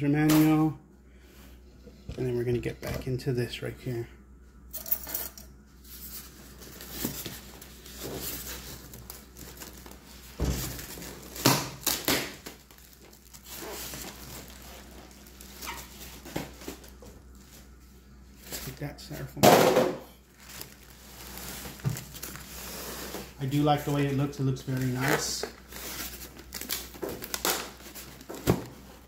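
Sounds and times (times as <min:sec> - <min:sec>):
plastic bag crinkling: 0:06.6 - 0:17.0, 0:20.2 - 0:22.8, 0:23.4 - 0:28.4.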